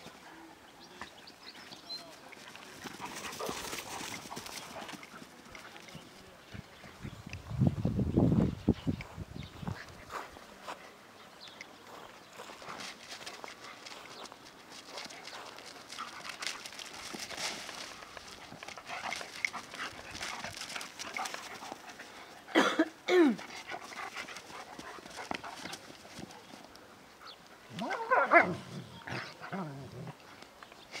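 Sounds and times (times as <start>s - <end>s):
paws scuffling on gravel: 1.5s - 6.9s, 9.6s - 22.3s, 23.4s - 26.8s.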